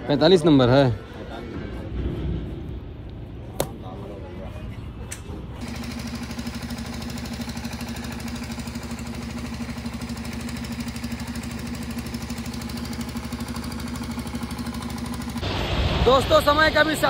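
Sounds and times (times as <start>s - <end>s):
motor-driven machine humming: 5.6s - 15.5s.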